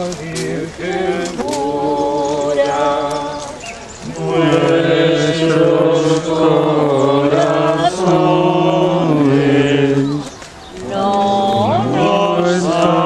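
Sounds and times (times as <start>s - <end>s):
man singing plainchant: 0.0s - 13.0s.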